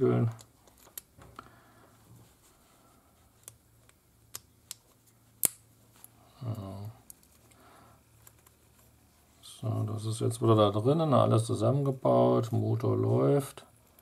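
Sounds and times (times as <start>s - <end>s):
plastic parts clicking together: 0.3s - 1.5s.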